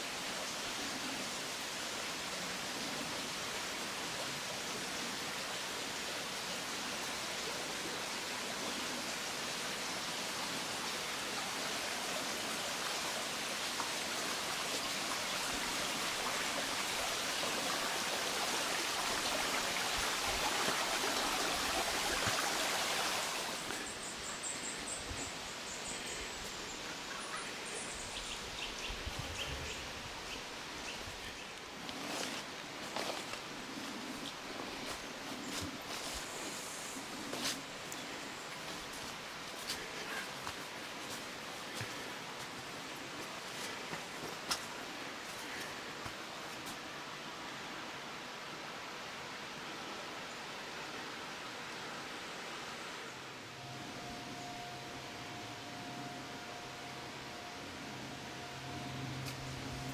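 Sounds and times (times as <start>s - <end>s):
stream rushing over stones: 0.0s - 24.0s, 29.4s - 53.0s.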